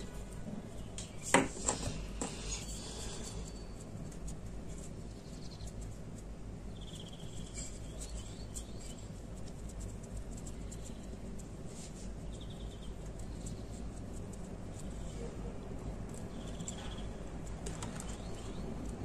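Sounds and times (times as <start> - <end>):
low room hum: 0.0 - 19.0
high chirping trills: 12.2 - 13.9.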